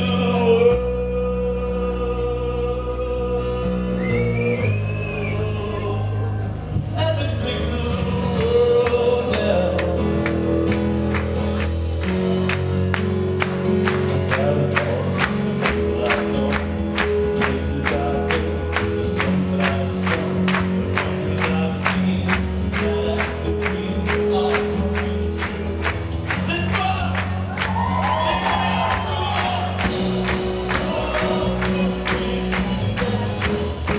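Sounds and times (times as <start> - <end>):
man singing: 0.0 - 10.8, 13.8 - 33.9
live pop band playing: 0.0 - 33.9.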